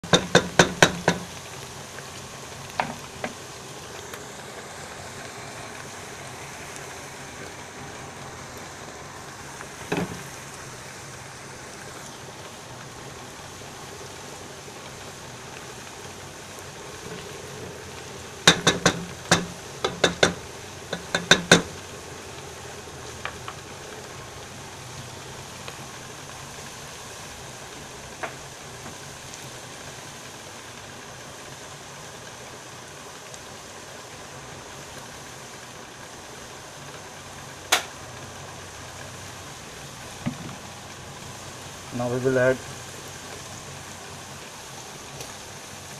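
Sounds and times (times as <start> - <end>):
onions sizzling in oil: 0.0 - 45.9
sharp knocks: 18.5 - 21.7.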